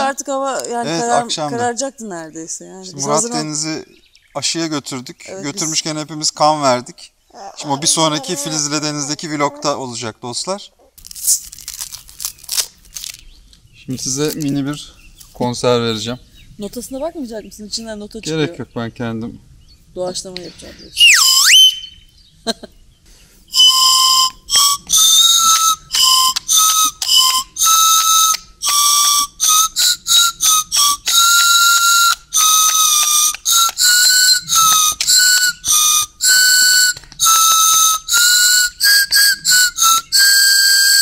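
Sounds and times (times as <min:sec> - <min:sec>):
toy flute notes: 0:21.0 - 0:22.0, 0:23.5 - 0:41.0.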